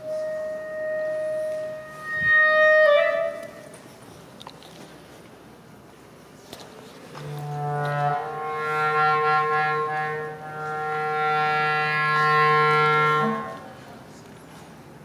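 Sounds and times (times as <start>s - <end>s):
clarinet long low note: 0.0s - 3.7s, 7.2s - 14.0s.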